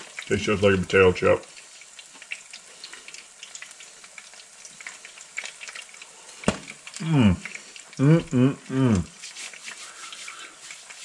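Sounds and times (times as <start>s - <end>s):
hot oil frying: 0.0s - 11.0s
person humming: 7.0s - 9.1s.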